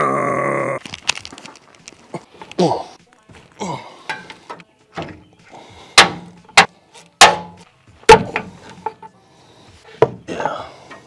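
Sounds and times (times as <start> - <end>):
metallic driveline clunks: 6.0 - 9.1.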